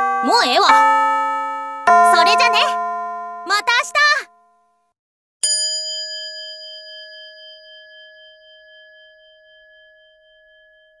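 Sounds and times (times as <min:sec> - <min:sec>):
bell ringing: 0:00.0 - 0:04.4, 0:05.4 - 0:08.9.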